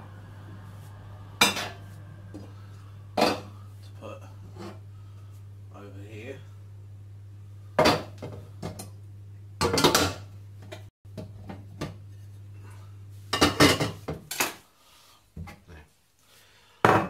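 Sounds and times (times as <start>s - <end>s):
dishes and cutlery clattering: 13.4s - 14.6s.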